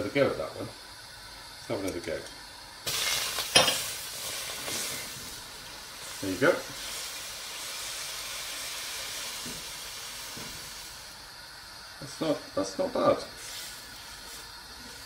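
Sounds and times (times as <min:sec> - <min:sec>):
water sizzling in hot wok: 0:00.0 - 0:15.0.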